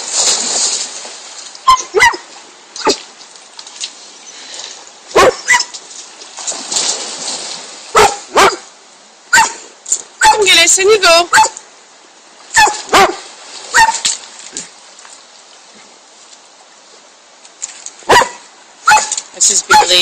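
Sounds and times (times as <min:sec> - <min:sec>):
dog barking: 0:01.7 - 0:02.2, 0:05.1 - 0:05.7, 0:07.9 - 0:08.6, 0:09.3 - 0:09.6, 0:11.3 - 0:11.6, 0:12.6 - 0:14.0, 0:18.1 - 0:20.0.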